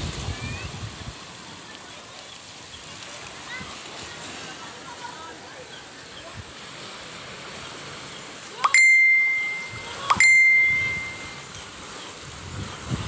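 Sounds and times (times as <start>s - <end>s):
bell dings: 8.6s - 11.4s.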